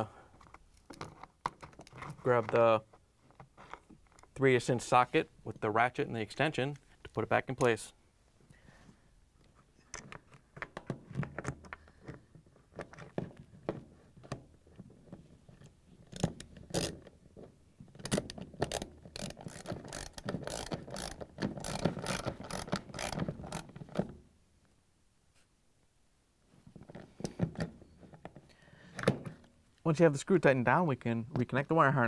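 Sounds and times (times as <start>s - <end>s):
ratchet wrench clicking: 18.1s - 23.7s.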